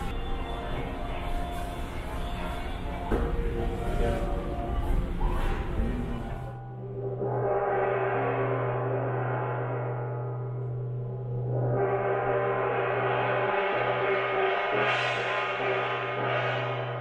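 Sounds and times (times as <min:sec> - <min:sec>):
brass gong ringing: 0:06.2 - 0:17.0.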